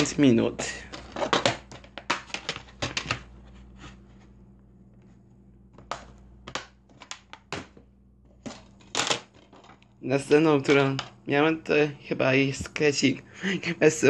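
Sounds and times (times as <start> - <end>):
plastic dvd cases clicking: 0.9 - 3.3, 5.8 - 7.8.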